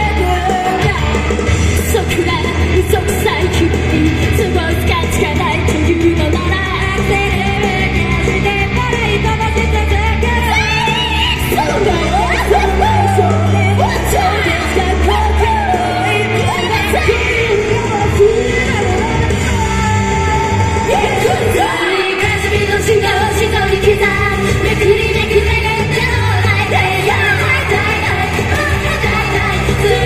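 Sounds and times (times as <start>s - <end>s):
pop backing track with beat: 0.0s - 30.0s
women singing pop song: 0.0s - 30.0s
shouts and whoops: 10.4s - 17.7s.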